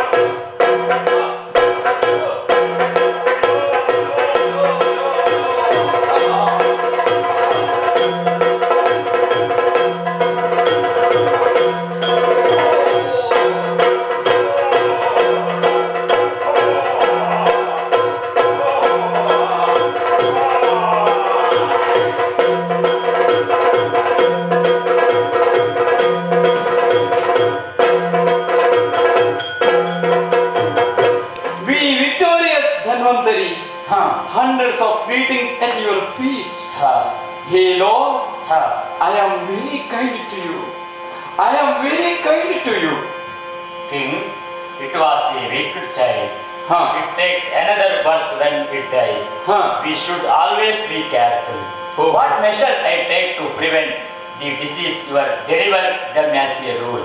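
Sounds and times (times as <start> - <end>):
drum playing a fast rhythm: 0.0 - 40.7
steady drone: 0.0 - 57.0
wavering melodic line: 0.4 - 56.8.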